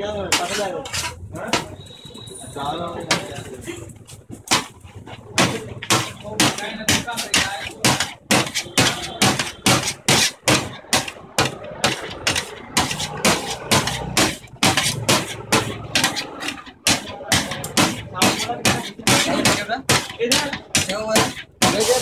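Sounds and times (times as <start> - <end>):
metal spatula clanking on steel pan: 0.3 - 1.8, 4.5 - 22.0.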